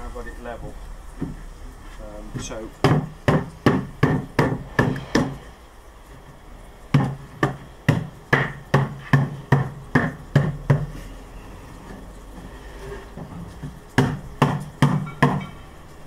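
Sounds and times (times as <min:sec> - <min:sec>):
mallet knocking on wooden panels: 0:02.8 - 0:05.4, 0:06.9 - 0:11.0, 0:13.2 - 0:15.6.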